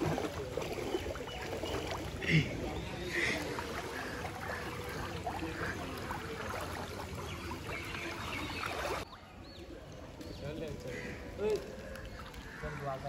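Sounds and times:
small water splashes: 0.0s - 13.0s
water sloshing around wading legs: 0.0s - 13.0s.

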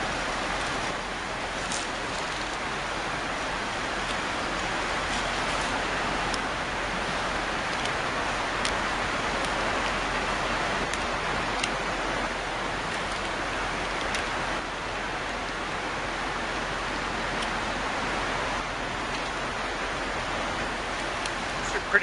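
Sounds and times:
faint light ticks: 17.4s - 17.6s, 21.0s - 21.4s.

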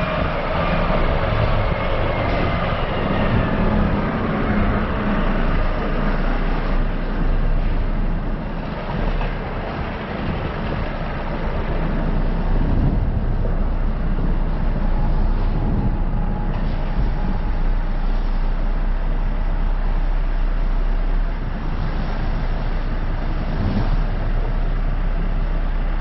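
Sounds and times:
vehicle rumble with hiss: 0.0s - 26.0s.

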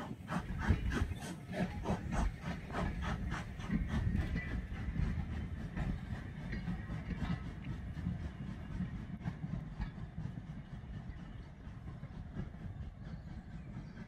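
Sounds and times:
train wheels rumbling: 0.0s - 14.0s.

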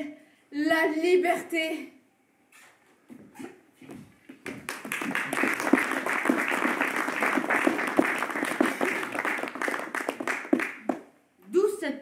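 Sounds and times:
audience applauding: 4.4s - 11.1s.

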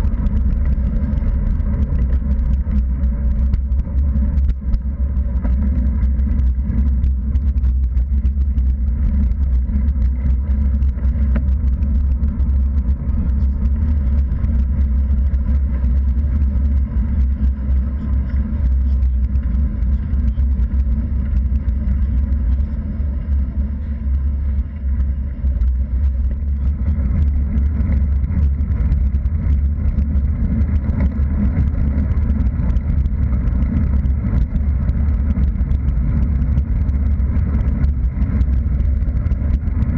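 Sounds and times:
tyre noise on tarmac: 0.0s - 39.9s
wind buffeting microphone: 0.0s - 39.9s.

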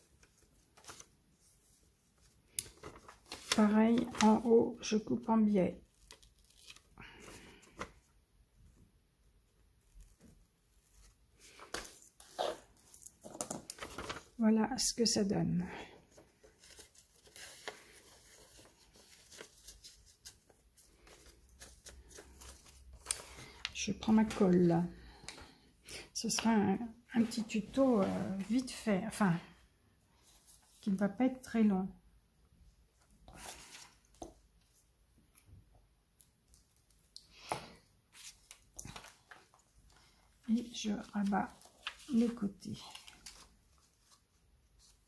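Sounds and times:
book page rustling: 0.0s - 4.6s, 5.8s - 8.1s, 9.5s - 14.4s, 16.0s - 25.6s, 33.2s - 35.4s, 38.1s - 45.0s.

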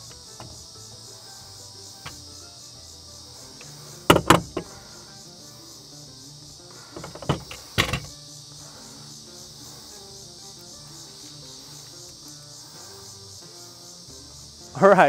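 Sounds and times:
sharp knocks and clicks: 0.0s - 1.0s, 2.0s - 2.3s, 3.6s - 4.9s, 6.9s - 8.2s
background music: 0.0s - 15.0s
crickets chirping: 0.0s - 15.0s.

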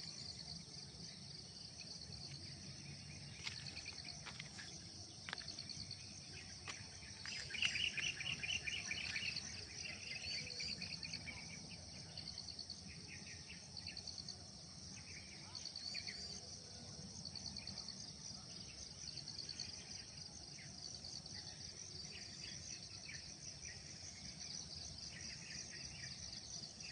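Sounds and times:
insects trilling: 0.0s - 16.4s
birds chirping: 1.9s - 12.4s.

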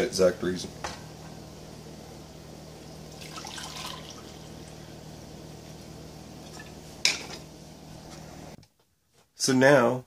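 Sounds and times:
coffee pouring into a mug: 3.1s - 4.5s.

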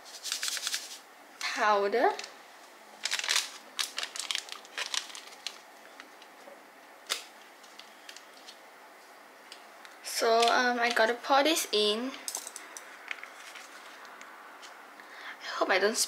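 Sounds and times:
foil sachet crinkling and tearing: 0.0s - 1.0s, 3.0s - 5.7s.

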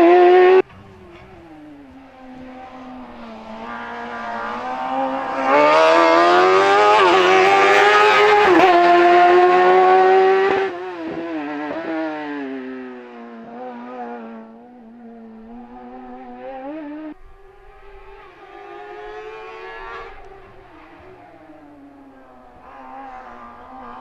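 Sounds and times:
race car engine revving: 0.0s - 12.8s.

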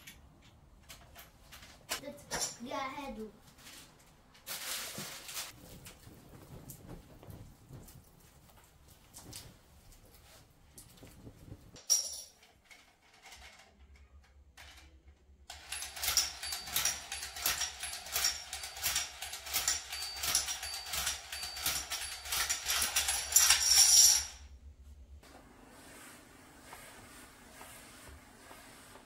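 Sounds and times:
toy train motor whirring: 15.5s - 24.1s.

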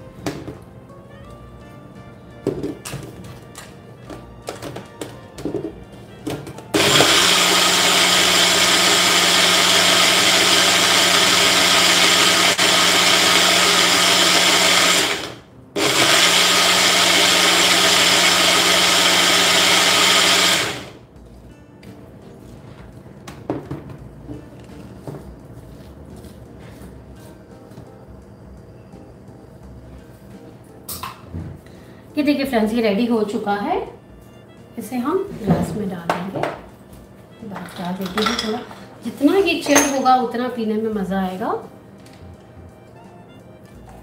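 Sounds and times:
blender running: 6.7s - 21.0s.

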